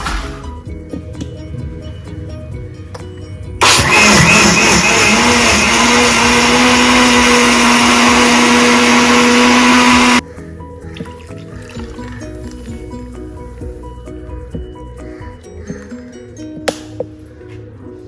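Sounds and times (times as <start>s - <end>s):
soft background music: 0.0s - 3.6s, 10.2s - 18.0s
blender motor whirring: 3.6s - 10.2s.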